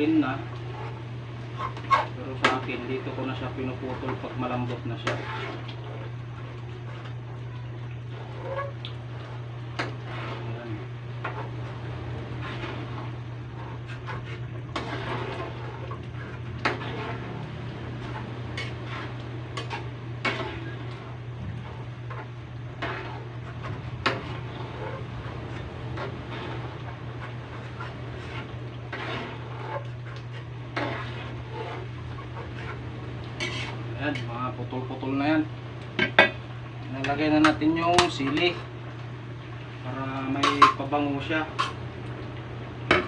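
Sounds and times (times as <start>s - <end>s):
metal spatula scraping a pan: 0.0s - 6.1s, 8.1s - 34.8s, 40.3s - 41.8s
steady low hum: 0.0s - 43.0s.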